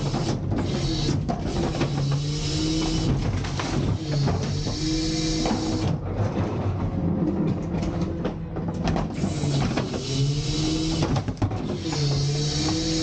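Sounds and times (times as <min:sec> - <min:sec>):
plastic carts clattering: 0:00.0 - 0:04.7
hydraulic whine: 0:00.0 - 0:06.1, 0:07.8 - 0:13.0
garbage truck engine and hydraulics: 0:00.0 - 0:13.0.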